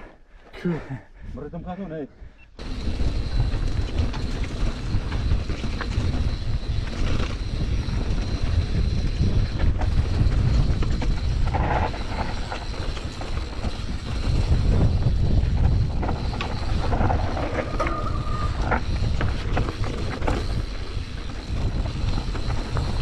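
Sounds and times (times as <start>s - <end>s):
wind rumbling on microphone: 1.2s - 23.0s
bike rattling: 2.6s - 23.0s
tyres rolling over dirt and stones: 2.6s - 23.0s.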